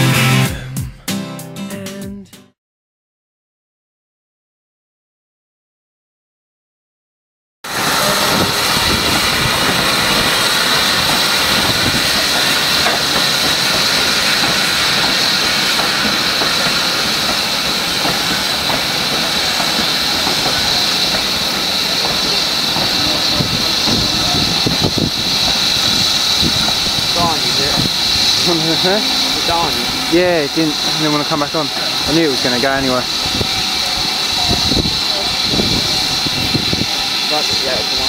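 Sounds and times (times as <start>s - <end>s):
steam hissing: 7.7s - 38.0s
train wheels clattering on rails: 8.0s - 38.0s.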